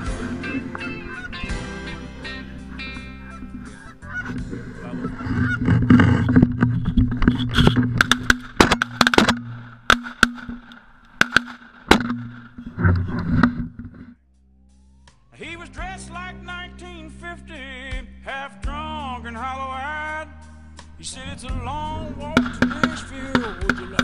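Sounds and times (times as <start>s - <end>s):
geese honking: 0.0s - 13.4s, 21.0s - 24.0s
sharp clicks: 5.4s - 13.0s, 22.3s - 24.0s.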